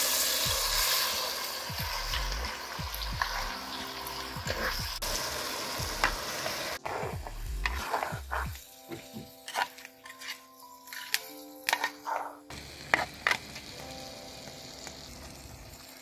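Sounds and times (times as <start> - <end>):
chutney sizzling in a pot: 0.0 - 16.0
music: 0.0 - 16.0
wooden ladle scraping a pot: 6.0 - 13.4.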